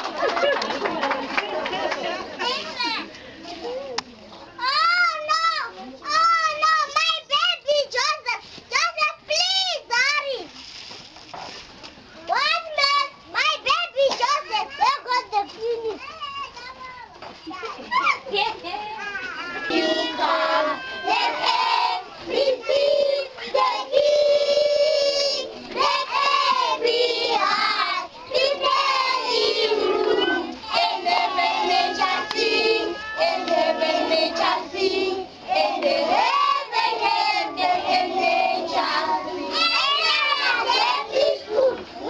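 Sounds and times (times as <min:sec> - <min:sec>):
children singing together: 0:19.5 - 0:42.0.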